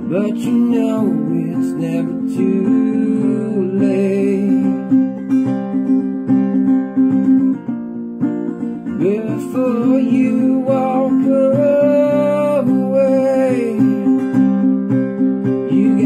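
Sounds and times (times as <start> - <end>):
man singing: 0.0 - 5.2, 8.9 - 14.6, 15.5 - 16.0
acoustic guitar strumming: 0.0 - 16.0.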